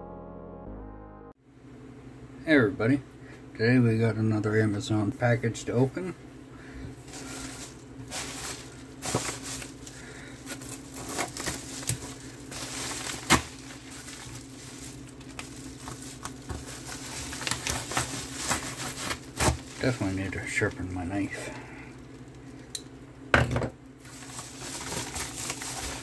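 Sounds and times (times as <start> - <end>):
paper scraping and crinkling: 7.0 - 21.6, 24.0 - 26.0.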